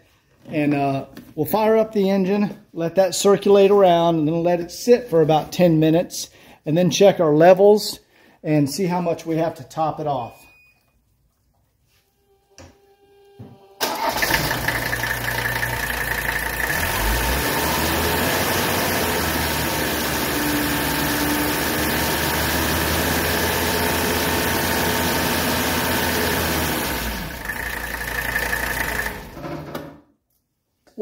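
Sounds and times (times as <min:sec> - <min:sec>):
diesel engine idling: 0:13.8 - 0:24.1.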